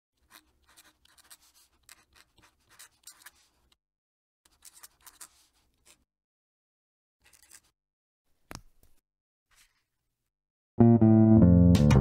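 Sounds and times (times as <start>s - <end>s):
pen nib scratching paper: 0.2s - 3.8s, 4.5s - 6.1s, 7.2s - 7.7s.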